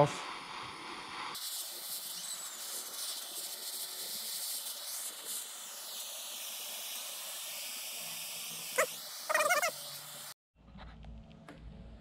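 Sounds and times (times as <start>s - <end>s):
gas torch hissing: 0.0s - 10.4s.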